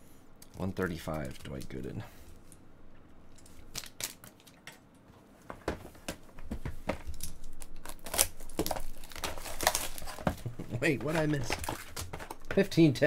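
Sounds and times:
plastic wrapper crinkling and tearing: 0:03.6 - 0:04.8, 0:07.1 - 0:12.5.

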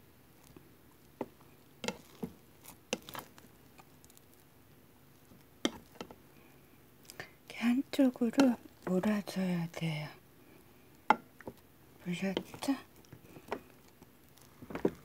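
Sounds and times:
rice paddle tapping and scraping: 0:00.4 - 0:03.9, 0:05.2 - 0:06.2, 0:08.2 - 0:09.2, 0:12.2 - 0:13.7.

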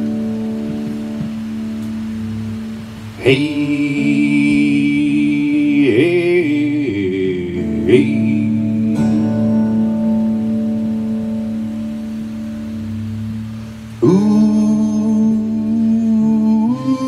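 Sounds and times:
steady sustained drone: 0:00.0 - 0:17.0
man singing held wordless notes: 0:03.0 - 0:12.2, 0:13.9 - 0:17.0.

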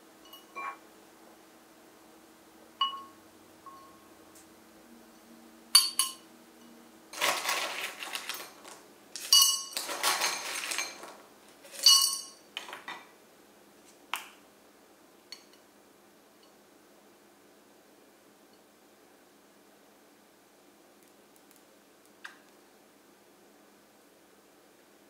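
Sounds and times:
sugar clinking on glass: 0:02.8 - 0:04.0, 0:05.8 - 0:06.8, 0:09.2 - 0:11.0, 0:11.7 - 0:12.4.

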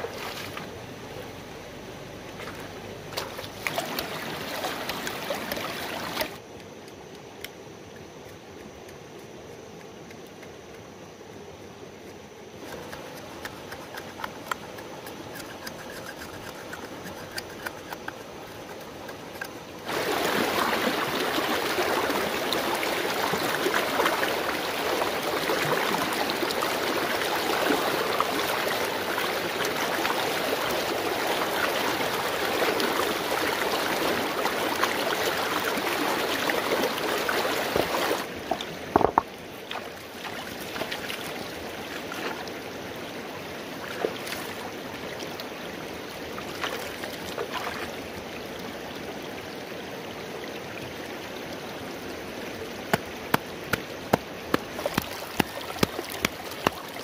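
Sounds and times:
stream running over stones: 0:00.0 - 0:57.0
hand tool tapping on rock: 0:52.9 - 0:56.8.

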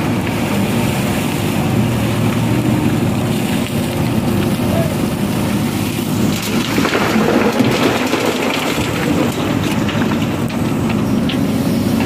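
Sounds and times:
diesel engine running: 0:00.0 - 0:12.0
stones clattering into steel trailer: 0:06.2 - 0:11.6.

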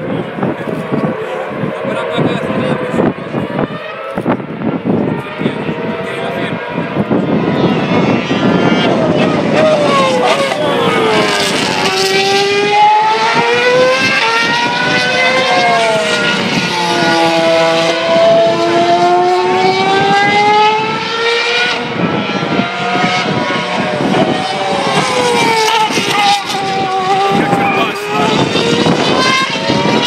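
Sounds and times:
racing car engines passing: 0:00.0 - 0:30.0.

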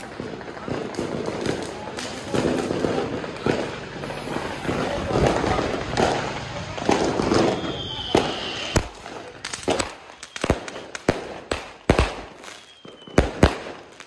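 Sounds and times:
fireworks bangs: 0:00.0 - 0:14.0
falling firework whistle: 0:04.0 - 0:06.2, 0:06.9 - 0:09.0, 0:09.9 - 0:11.0, 0:12.3 - 0:13.7.

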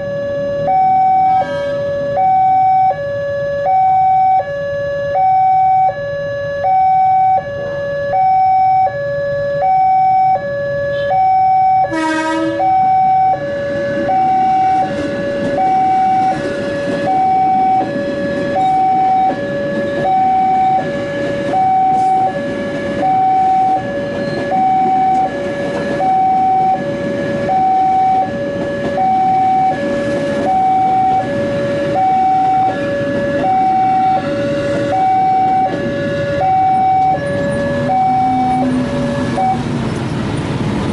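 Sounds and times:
level crossing two-tone alarm: 0:00.0 - 0:39.6
short loud horn blast: 0:01.3 - 0:01.9, 0:11.9 - 0:12.8
electric train rumbling past: 0:11.7 - 0:40.9.

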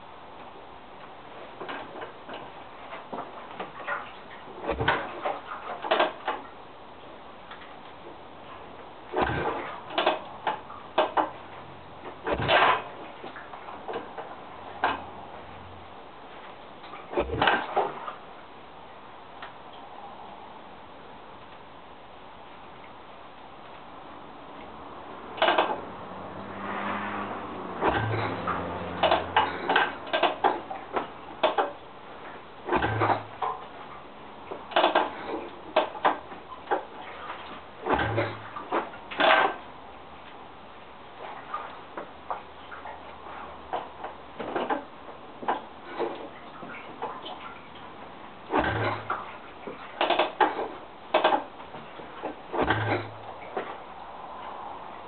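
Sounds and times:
motorcycle kick-start clanks: 0:04.6 - 0:06.5, 0:09.1 - 0:11.4, 0:12.2 - 0:13.1, 0:17.1 - 0:18.1, 0:25.4 - 0:25.8, 0:27.8 - 0:31.8, 0:32.6 - 0:33.6, 0:34.7 - 0:39.6, 0:48.5 - 0:53.7.

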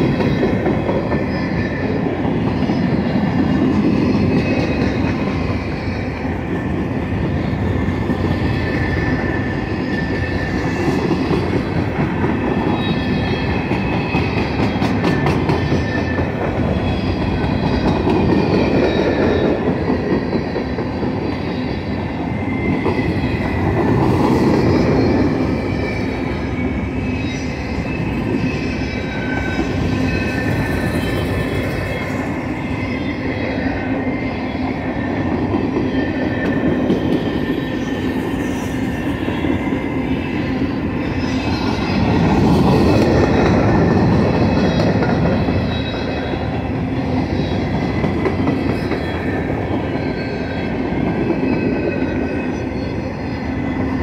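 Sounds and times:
train wheels rumbling on track: 0:00.0 - 0:54.0
high metallic wheel squeals: 0:12.5 - 0:54.0.

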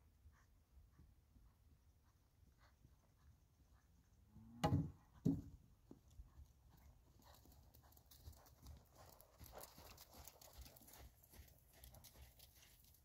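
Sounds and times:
horse hoofbeats on sand: 0:04.6 - 0:13.0.

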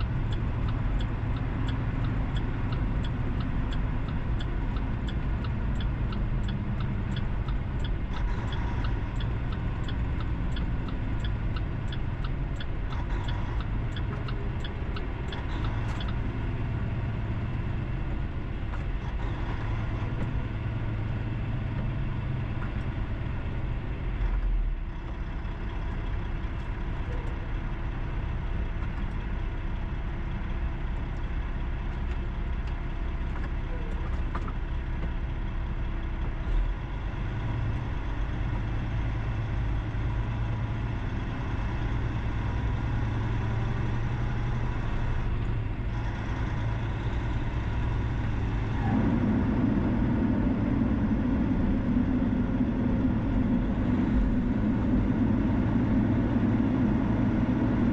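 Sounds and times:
vehicle road and engine noise: 0:00.0 - 0:57.9
low drone: 0:44.2 - 0:57.9.

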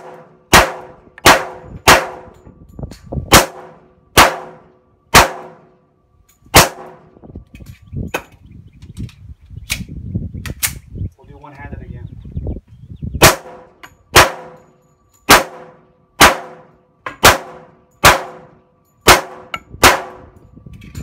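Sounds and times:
pistol shots: 0:00.0 - 0:02.4, 0:03.3 - 0:05.7, 0:06.5 - 0:07.1, 0:13.2 - 0:14.7, 0:15.3 - 0:20.2.

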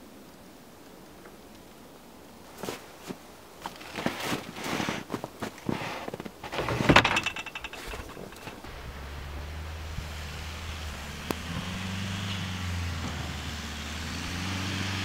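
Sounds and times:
footsteps crunching in snow: 0:02.5 - 0:06.8
steel trailer frame knocking: 0:06.8 - 0:08.7
car engine running: 0:07.9 - 0:15.0.

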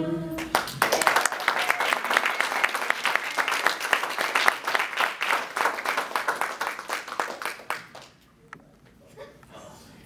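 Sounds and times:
crowd applauding: 0:00.4 - 0:08.2.

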